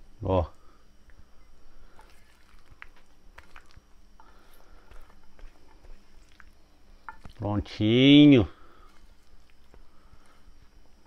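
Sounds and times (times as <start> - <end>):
wet squishing of pasta salad: 1.9 - 7.4.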